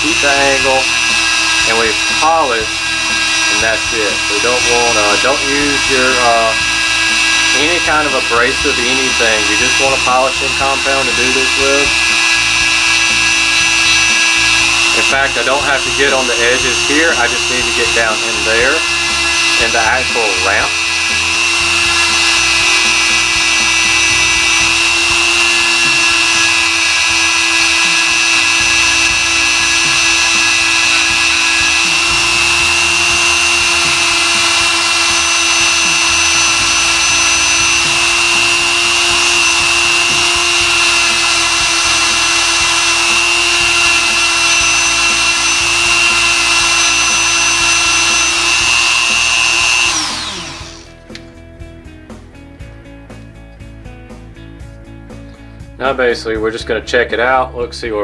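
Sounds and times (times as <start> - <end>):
rotary tool high-pitched whine: 0.0 - 51.0.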